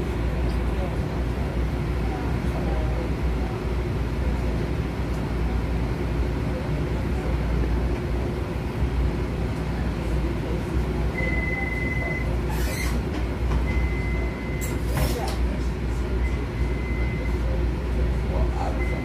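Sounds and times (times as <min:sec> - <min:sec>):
high beep: 0:11.2 - 0:12.3, 0:13.7 - 0:14.8, 0:18.8 - 0:19.0.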